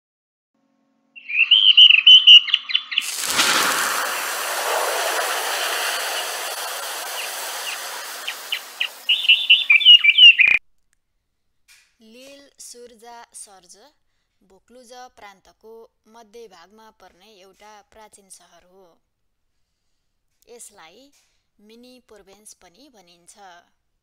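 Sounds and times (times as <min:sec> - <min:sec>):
bird chirping: 0:01.2 - 0:10.6
long hissing sweep: 0:03.0 - 0:10.6.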